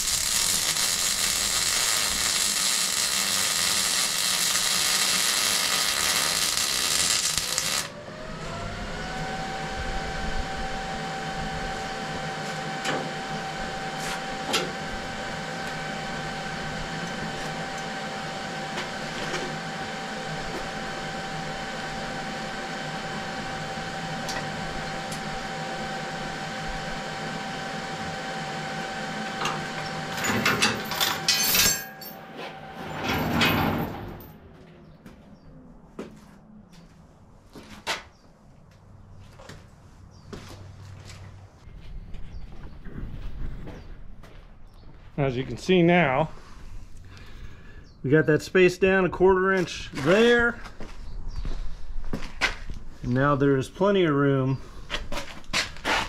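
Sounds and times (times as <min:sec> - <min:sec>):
welding arc crackling and hissing: 0:00.0 - 0:07.9
machine whine: 0:00.0 - 0:35.2.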